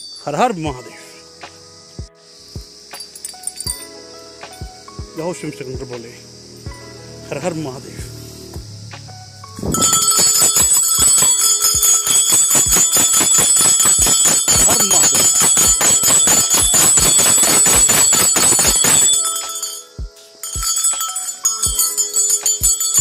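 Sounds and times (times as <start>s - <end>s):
bell rung rapidly: 9.7s - 23.0s.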